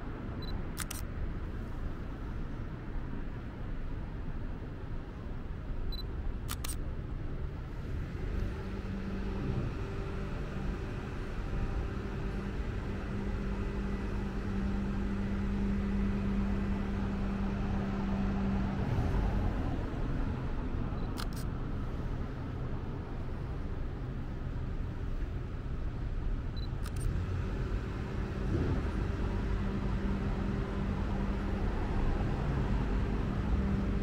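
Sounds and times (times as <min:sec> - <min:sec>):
low hum: 0:00.0 - 0:34.0
traffic background noise: 0:00.0 - 0:34.0
short clicks: 0:00.8 - 0:01.1, 0:06.5 - 0:06.8, 0:21.0 - 0:21.5, 0:26.7 - 0:27.1.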